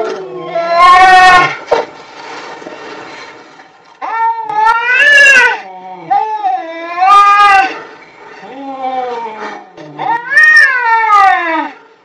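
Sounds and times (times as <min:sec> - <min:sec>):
cats yowling: 0:00.0 - 0:01.6, 0:04.0 - 0:07.8, 0:08.4 - 0:11.8.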